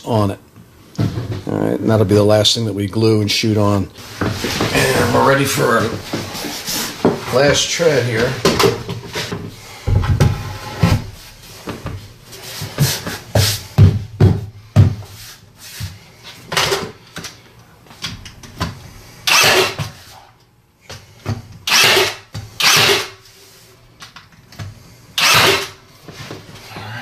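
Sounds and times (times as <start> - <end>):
power tool hissing bursts: 19.3 - 19.8, 21.7 - 23.2, 25.2 - 25.8.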